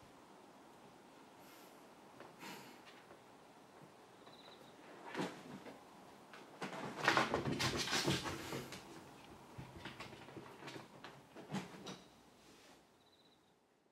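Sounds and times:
cat thumping and scrabbling on table: 0:06.6 - 0:09.0.

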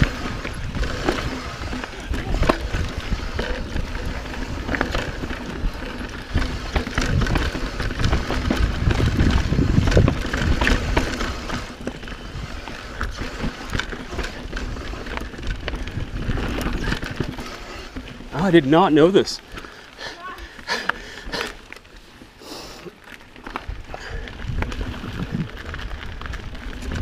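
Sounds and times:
wind on microphone: 0:00.0 - 0:17.7, 0:23.8 - 0:27.0
bike clicks and rattles: 0:00.0 - 0:27.0
bike tyres rumbling over dirt: 0:00.0 - 0:27.0.

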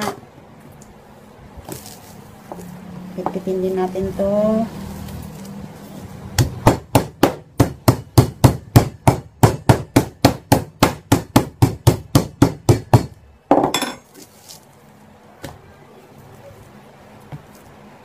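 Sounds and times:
meat mallet pounding meat: 0:06.3 - 0:13.2.

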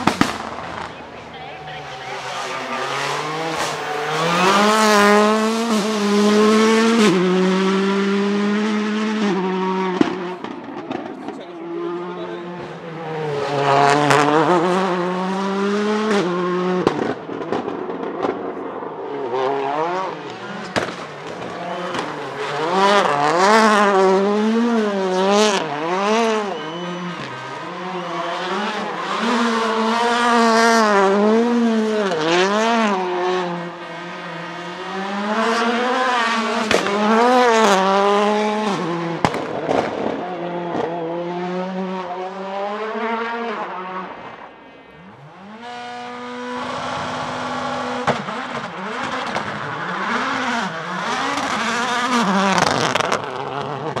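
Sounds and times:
exhaust bangs: 0:00.0 - 0:42.0
race car engine revving hard: 0:00.0 - 0:44.3, 0:45.0 - 0:54.0.

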